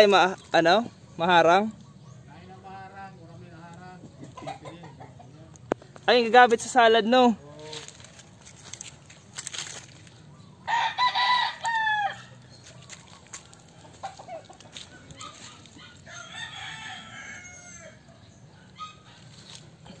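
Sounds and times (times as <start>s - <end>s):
rooster crowing: 10.6s - 12.4s, 15.3s - 19.0s.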